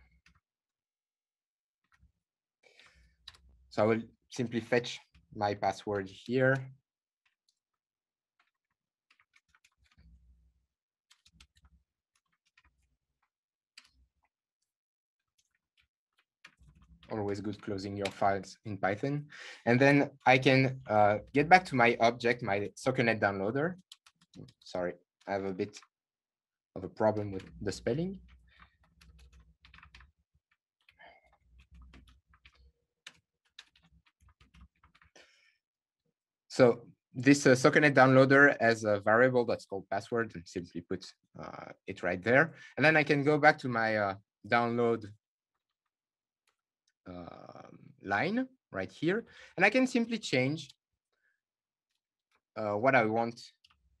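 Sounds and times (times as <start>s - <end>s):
faint keyboard typing: 2.7s - 7.6s, 8.4s - 10.3s, 11.1s - 14.7s, 15.3s - 25.9s, 26.8s - 35.5s
typing on computer keyboard: 27.2s - 35.3s.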